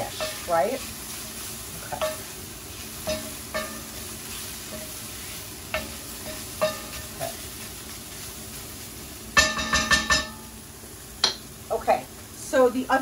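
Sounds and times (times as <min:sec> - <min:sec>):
spatula scraping a pan: 0:00.0 - 0:08.6
vegetables sizzling in a pan: 0:00.0 - 0:13.0.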